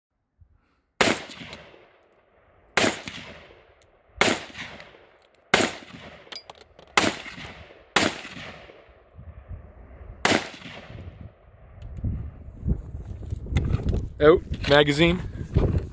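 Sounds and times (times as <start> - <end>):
rifle shots echoing: 1.0 - 2.0, 2.7 - 6.3, 6.9 - 9.1, 10.2 - 11.2.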